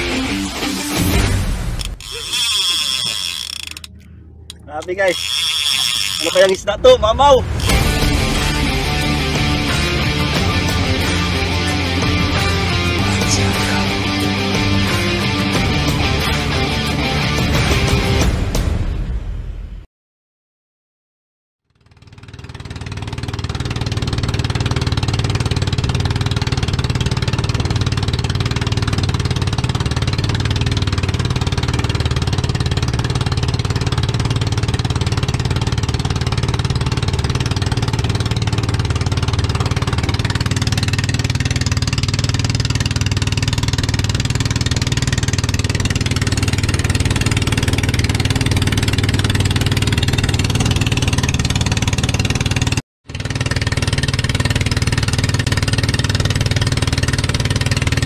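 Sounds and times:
boat engine droning: 0.0s - 18.2s, 22.2s - 58.0s
wind: 1.4s - 8.3s, 21.8s - 58.0s.

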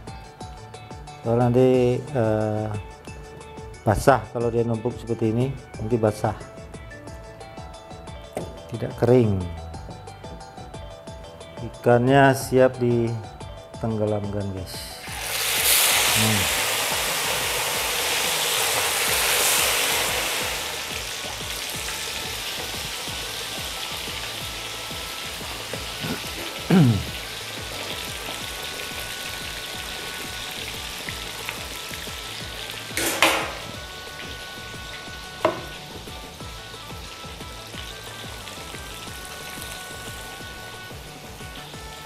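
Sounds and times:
fish deep-frying in hot oil: 14.9s - 42.0s.

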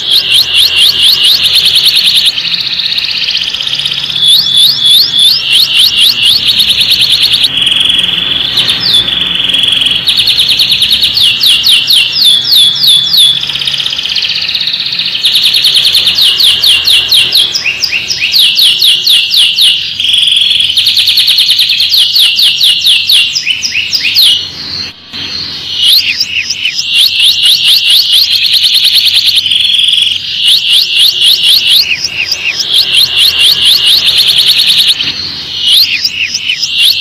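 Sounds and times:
canary singing: 0.0s - 37.0s.

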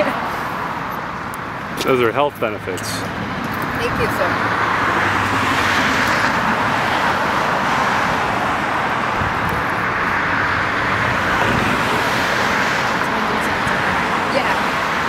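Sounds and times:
road traffic roar: 0.0s - 15.0s.

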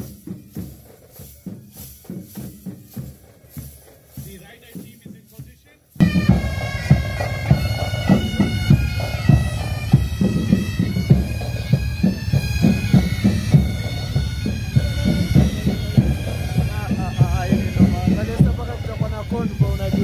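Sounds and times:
steady drumbeat: 0.0s - 20.0s
bagpipes playing: 6.0s - 20.0s.

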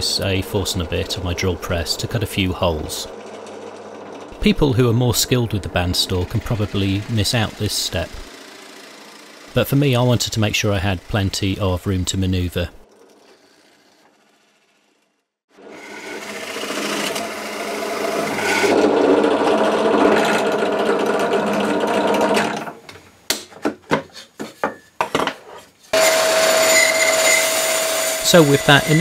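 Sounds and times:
drill press boring into wood: 0.9s - 11.7s, 15.6s - 22.8s.

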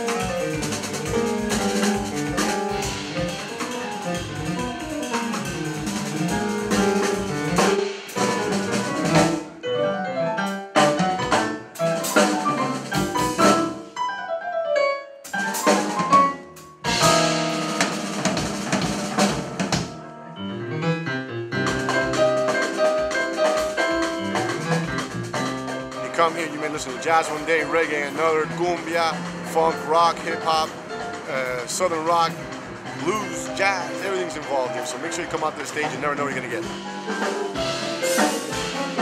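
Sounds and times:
drum kit with cymbals: 0.0s - 9.6s, 10.4s - 14.0s, 15.2s - 20.0s, 21.6s - 39.0s
stage keyboard runs and chords: 0.0s - 39.0s.

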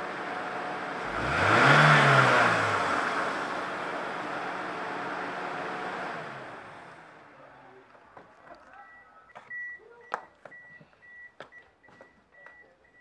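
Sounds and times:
car engine revving: 0.0s - 7.7s.

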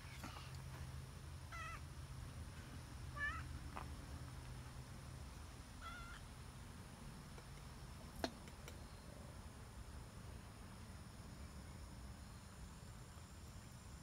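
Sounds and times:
cat meowing: 1.5s - 1.8s, 3.2s - 3.5s, 5.8s - 6.2s.

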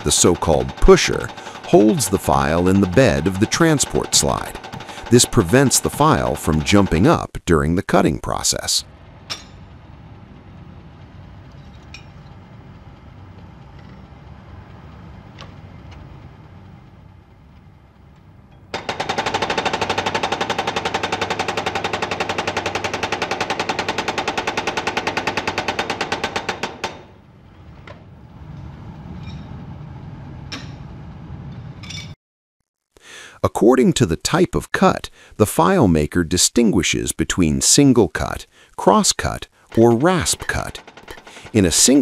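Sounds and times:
low machine rumble: 0.0s - 7.1s, 8.9s - 18.7s
chisel hammering steel: 0.0s - 7.2s, 18.8s - 27.2s.

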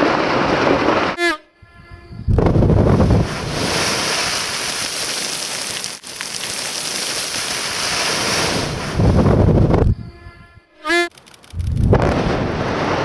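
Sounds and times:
gravel raining down hiss: 2.6s - 9.7s
deep boom: 11.8s - 13.0s.

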